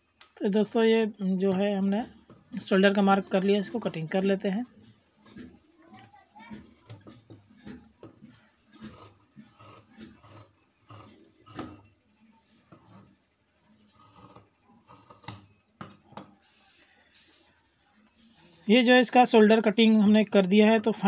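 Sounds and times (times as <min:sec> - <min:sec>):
cricket chirping: 0:00.0 - 0:21.0
scissors cutting fabric: 0:08.7 - 0:11.9, 0:14.0 - 0:15.5.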